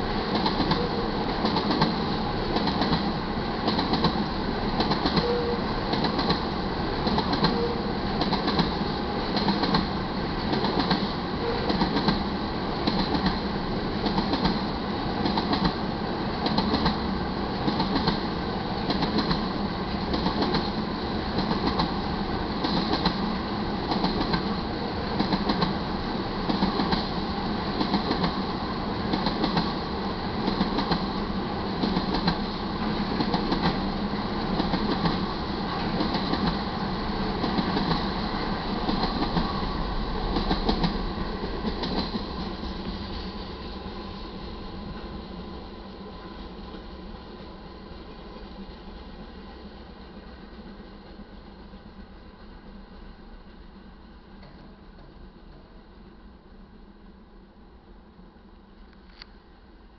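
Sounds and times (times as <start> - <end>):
train rumbling past: 0.0 - 59.9.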